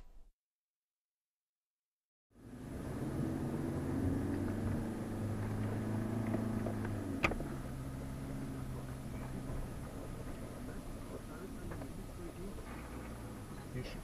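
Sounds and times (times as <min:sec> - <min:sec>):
engine running at low speed: 0:02.3 - 0:14.0.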